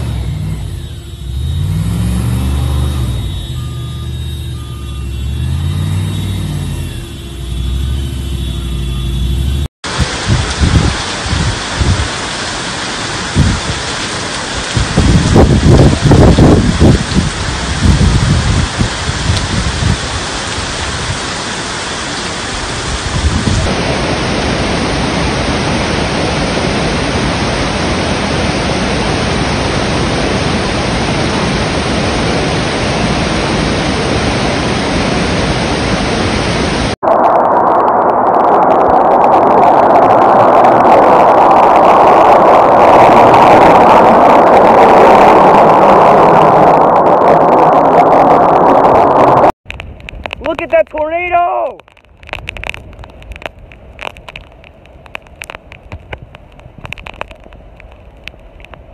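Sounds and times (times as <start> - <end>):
torrential rain: 9.8 - 58.9
flood water rushing: 9.9 - 56.1.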